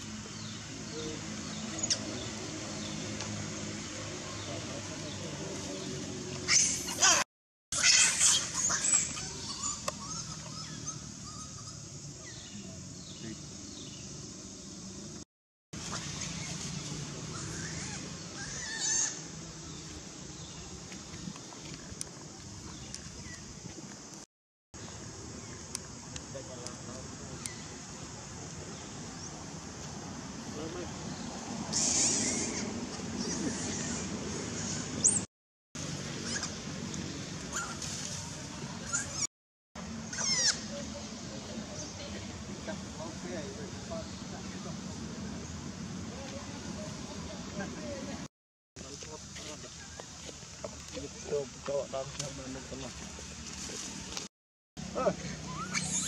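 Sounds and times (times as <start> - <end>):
macaques screaming: 6.5 - 7.2, 7.8 - 11.9, 17.3 - 19.3, 31.7 - 35.2, 37.5 - 37.8, 40.0 - 40.9, 55.3 - 56.0
monkey squeals: 6.5 - 7.2, 7.8 - 11.8, 17.3 - 19.2, 31.7 - 35.2, 36.2 - 36.6, 37.5 - 37.8, 38.8 - 39.3, 40.0 - 40.8, 55.3 - 56.0
rustle of dry leaves: 15.8 - 24.2, 24.8 - 35.2, 35.8 - 48.2, 48.8 - 54.3
bird chirps and calls: 55.1 - 56.0.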